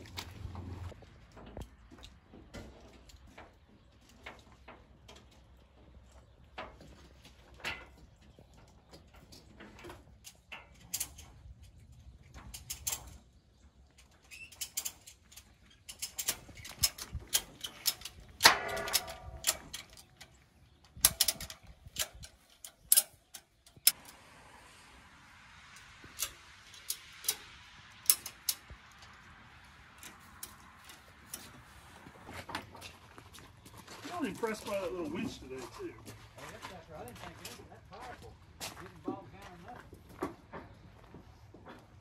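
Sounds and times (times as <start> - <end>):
metallic clicks and clanks of tie-downs: 6.5 - 24.2, 25.7 - 33.0.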